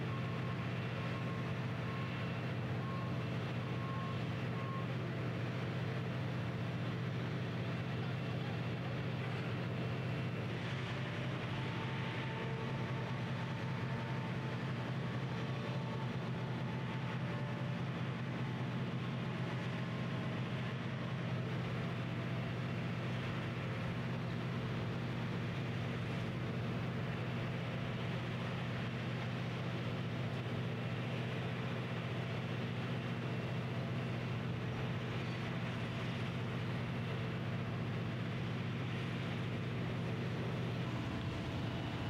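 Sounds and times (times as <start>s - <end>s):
large engine droning: 0.0s - 42.0s.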